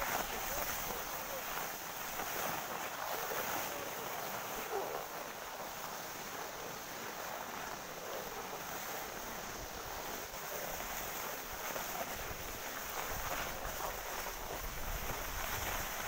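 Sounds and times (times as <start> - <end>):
wind hissing on microphone: 0.0 - 16.0
low rumbling wind buffets: 12.2 - 16.0.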